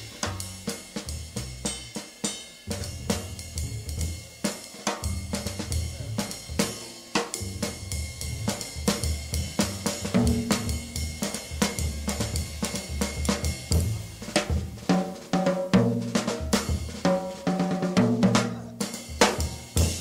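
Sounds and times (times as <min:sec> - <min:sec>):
bass line: 0:00.0 - 0:01.9, 0:02.7 - 0:04.4, 0:05.0 - 0:06.8, 0:07.4 - 0:14.9, 0:15.8 - 0:17.0, 0:18.0 - 0:20.0
drum kit beat: 0:00.0 - 0:20.0.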